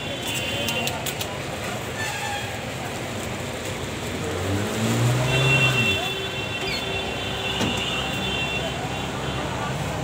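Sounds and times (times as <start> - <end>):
street traffic: 0.0 - 10.0
vehicle engine passing: 4.1 - 5.7.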